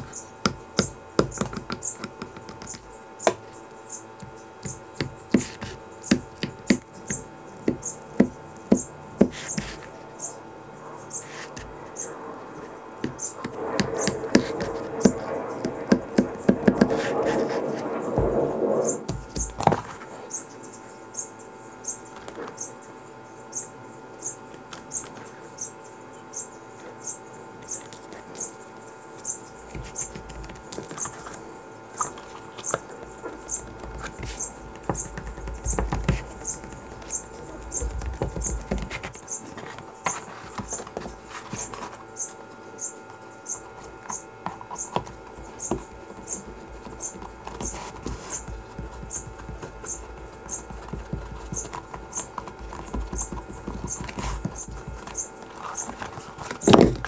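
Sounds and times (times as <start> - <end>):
knocks and rustles of leather: 44.6 - 57.0.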